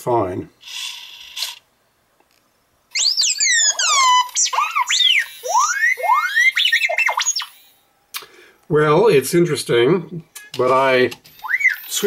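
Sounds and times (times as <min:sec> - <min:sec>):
toy robot electronic beeps and whistles: 0:00.6 - 0:01.6, 0:02.9 - 0:07.8, 0:11.4 - 0:12.0.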